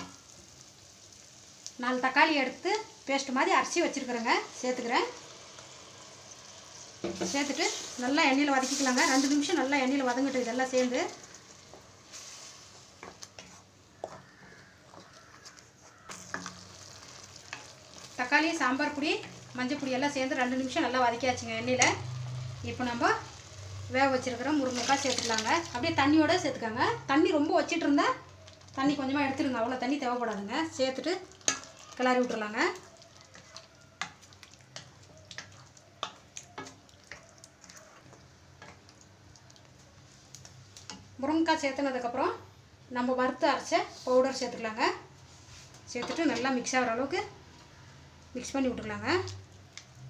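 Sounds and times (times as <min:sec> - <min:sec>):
faint sizzle of frying paste: 0:00.0 - 0:50.0
wooden spatula scraping a pan: 0:07.0 - 0:18.2, 0:31.4 - 0:38.9, 0:45.2 - 0:46.6.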